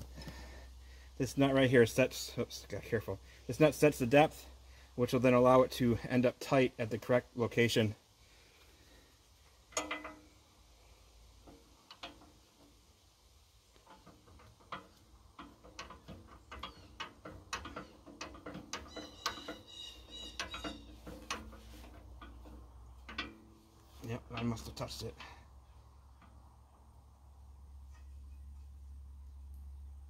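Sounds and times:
metallic clicks and rattles: 0:09.6 - 0:10.5, 0:11.4 - 0:13.0, 0:13.7 - 0:26.6.

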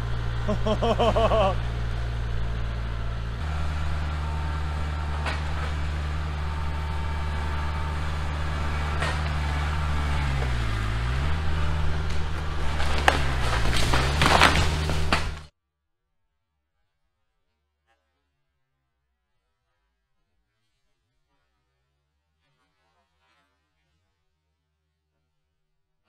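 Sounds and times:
tractor diesel engine under load: 0:00.0 - 0:15.5.

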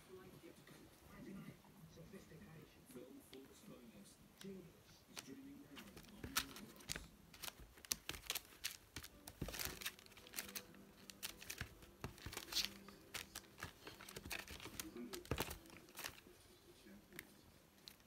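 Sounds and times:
newspaper crinkling: 0:05.2 - 0:16.3.

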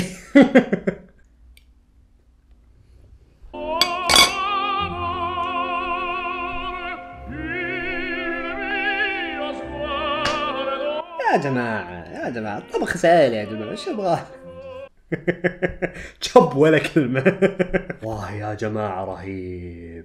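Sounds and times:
operatic voice singing: 0:03.6 - 0:14.9.

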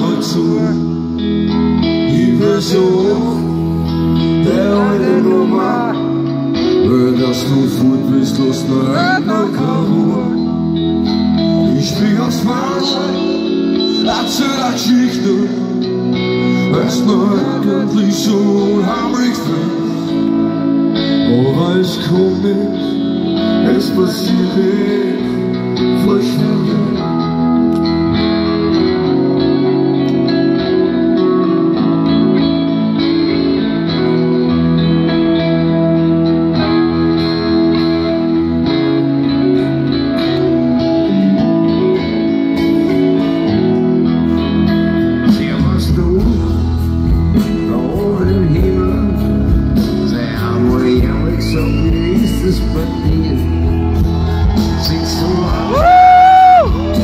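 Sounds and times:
acoustic guitar playing chords: 0:00.0 - 0:57.0
men singing: 0:02.1 - 0:03.7, 0:04.3 - 0:10.5, 0:16.5 - 0:20.1, 0:23.6 - 0:27.2, 0:54.7 - 0:56.0.

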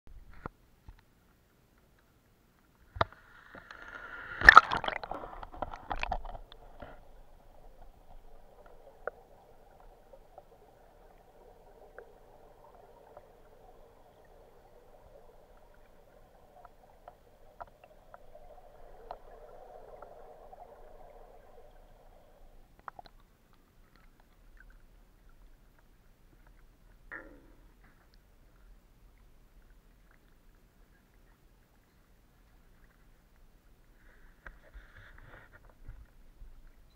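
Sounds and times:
water splashing and bubbling: 0:02.9 - 0:36.9
muffled underwater noise: 0:03.0 - 0:22.7.

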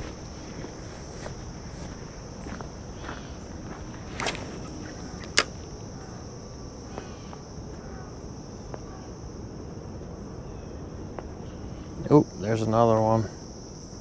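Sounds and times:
light footsteps on pavement: 0:00.0 - 0:05.7
crickets chirring: 0:00.0 - 0:14.0.

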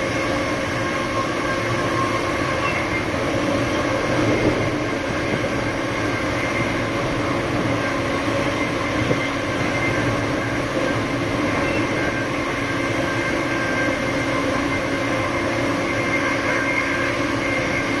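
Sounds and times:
diesel locomotive engine droning: 0:00.0 - 0:18.0.

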